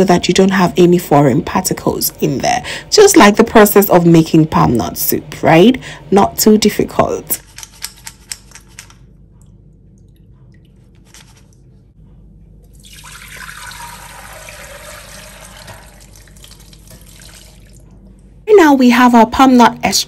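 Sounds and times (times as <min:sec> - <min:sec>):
thick liquid pouring into bowl: 0:12.7 - 0:17.8.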